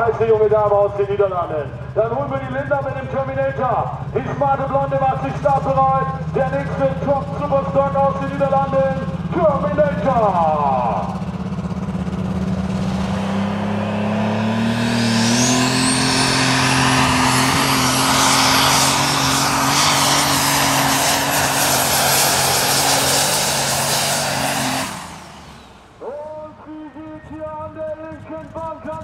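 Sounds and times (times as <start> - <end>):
tractor engine at full throttle: 0.0 - 29.0
turbocharger high whistle: 13.9 - 27.4.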